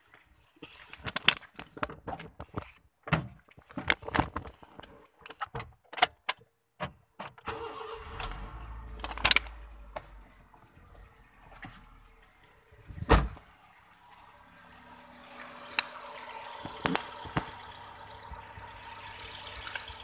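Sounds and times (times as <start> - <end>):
car engine starting and running: 7.2 - 20.0.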